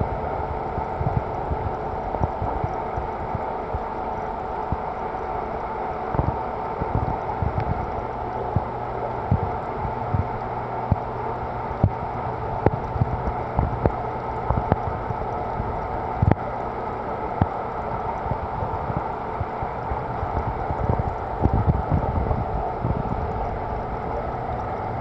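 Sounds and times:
faint low hum: 0:00.0 - 0:25.0
rushing water circulation: 0:00.0 - 0:25.0
soft low thumps: 0:06.2 - 0:11.1, 0:18.2 - 0:25.0.

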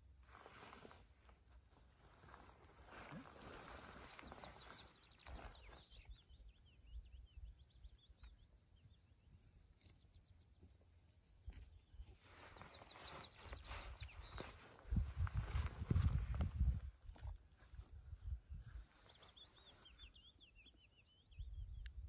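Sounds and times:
songbird trilling and chirping: 0:03.4 - 0:11.4, 0:12.2 - 0:16.8, 0:18.2 - 0:22.0.

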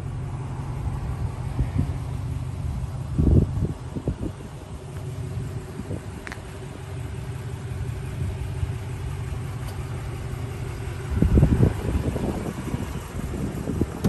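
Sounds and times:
pickup truck engine idling: 0:00.0 - 0:14.0
wind gust on microphone: 0:11.1 - 0:14.0.

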